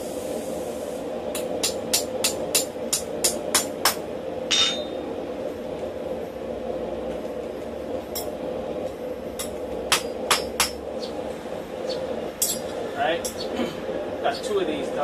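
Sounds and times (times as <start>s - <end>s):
steady hum: 0.0s - 15.0s
hammer striking steel rod: 1.4s - 5.0s, 9.4s - 10.8s, 12.4s - 13.4s.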